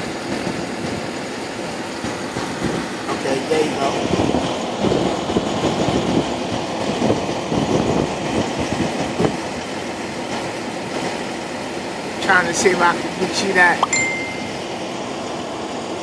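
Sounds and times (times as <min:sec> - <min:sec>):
wind gusting over microphone: 0:00.0 - 0:12.2.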